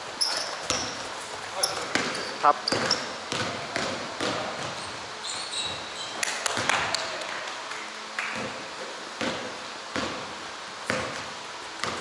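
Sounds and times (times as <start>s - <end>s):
sneaker squeaks: 0.1s - 6.7s
footfalls on wooden court: 0.2s - 4.8s
basketball bouncing: 0.2s - 5.0s, 5.6s - 7.0s, 8.4s - 8.6s, 9.2s - 12.0s.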